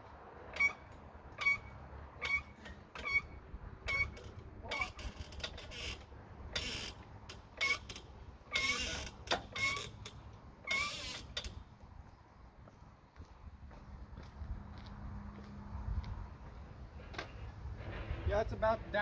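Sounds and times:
floor jack handle squeaking: 0.5 - 7.0, 7.6 - 11.5.

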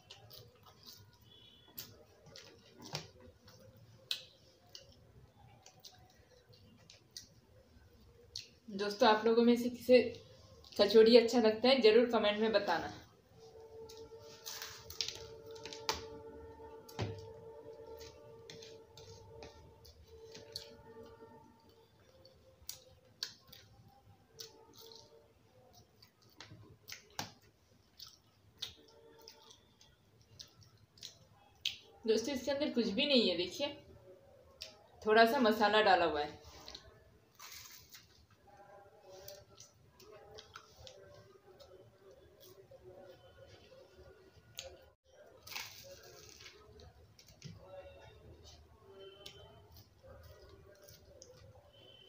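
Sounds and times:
wet chewing: 0.0 - 7.5, 16.9 - 32.0, 36.5 - 47.5
person chewing with wet mouth clicks: 24.4 - 31.9.

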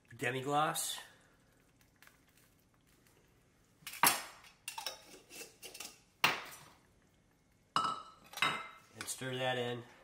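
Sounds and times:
metal cookware clanking: 3.9 - 6.7, 7.8 - 9.2.

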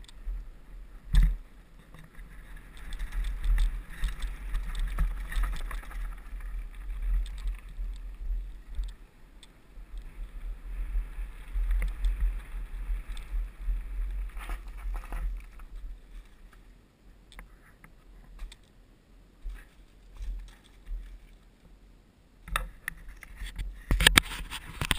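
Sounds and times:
wind buffeting microphone: 0.0 - 16.1
bike tyres crunching on gravel: 0.0 - 16.7
bike frame and chain rattling: 1.1 - 8.9, 11.3 - 16.4.

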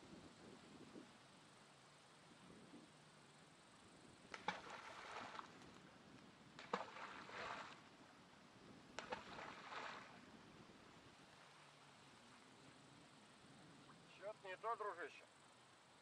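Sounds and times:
balls splashing into water: 4.3 - 5.6, 6.6 - 7.8, 9.0 - 10.2.

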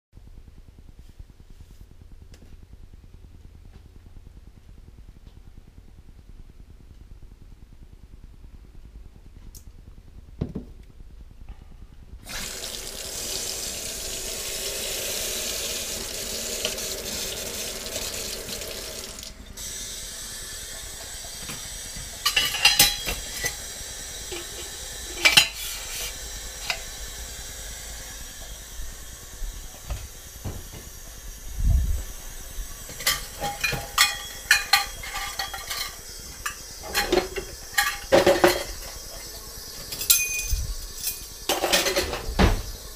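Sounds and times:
dishes and cutlery clinking: 22.2 - 23.6, 33.0 - 39.0, 39.9 - 42.3.

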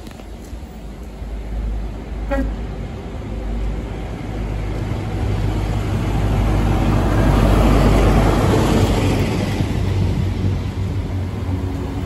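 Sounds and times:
train engine hum: 0.0 - 12.0
train wheel and rail noise: 0.0 - 12.0.

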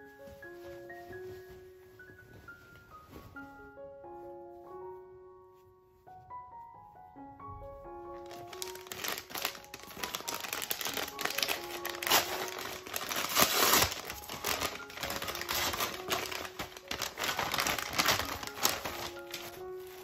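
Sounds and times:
soft piano music: 0.0 - 20.0
paper bag crinkling: 8.1 - 20.0.

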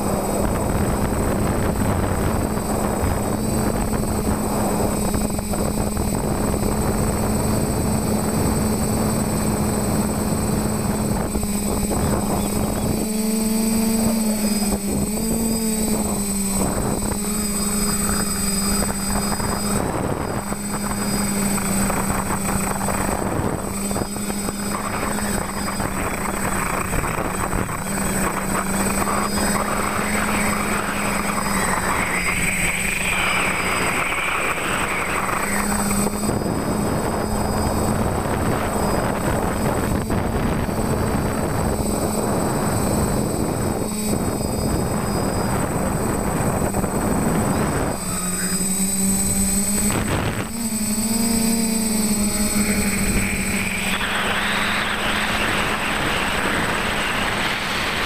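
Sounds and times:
quadcopter motors whining: 0.0 - 58.0
rushing air hiss: 52.0 - 58.0.

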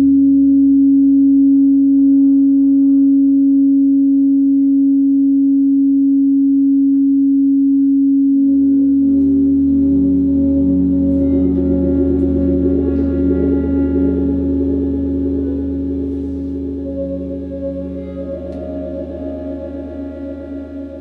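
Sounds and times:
low hum: 0.0 - 21.0
amplified electric drone: 6.2 - 21.0
quieter sustained notes: 6.6 - 21.0.

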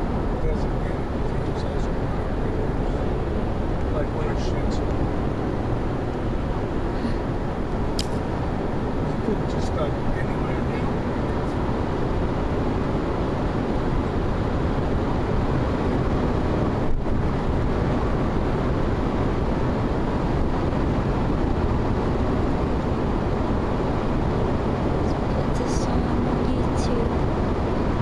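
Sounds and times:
road and wind noise in vehicle: 0.0 - 28.0
brief click: 8.0 - 8.2.

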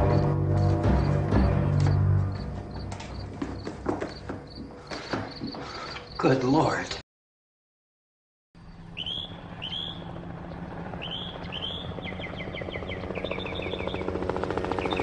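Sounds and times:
birds chirping: 0.0 - 7.0, 8.6 - 15.0
helicopter flying overhead: 8.6 - 15.0.

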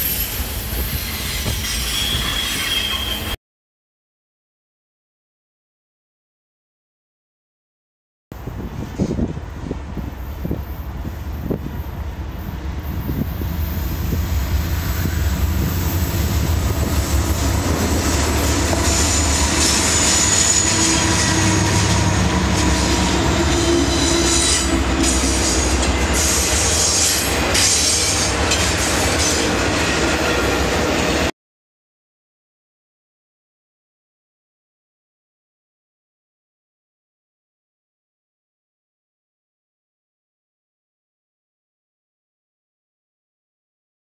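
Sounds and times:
high-pitched wheel squeal: 0.0 - 3.4, 18.8 - 28.2
diesel locomotive engine rumble: 8.4 - 31.3.

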